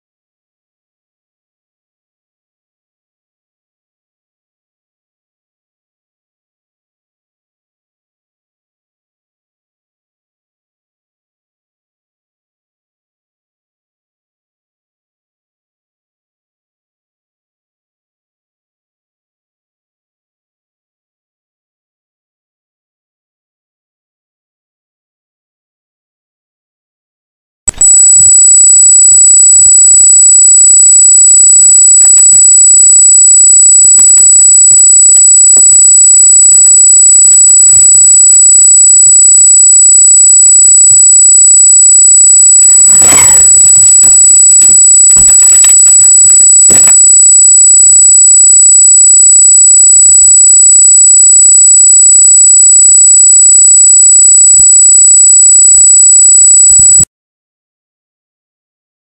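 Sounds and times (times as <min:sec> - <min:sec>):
sharp click: 0:27.7 - 0:28.0, 0:43.0 - 0:43.5, 0:46.7 - 0:47.0
high-pitched electronic squeal: 0:27.7 - 0:28.5, 0:42.9 - 0:47.1
short burst of noise: 0:43.0 - 0:43.6, 0:46.7 - 0:47.0.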